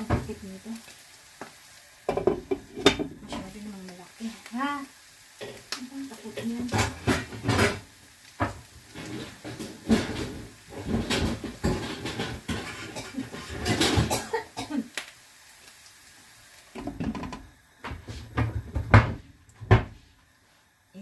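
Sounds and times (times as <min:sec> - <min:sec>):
pans and lids clattering: 0:02.1 - 0:03.5, 0:06.3 - 0:14.4, 0:16.8 - 0:19.9.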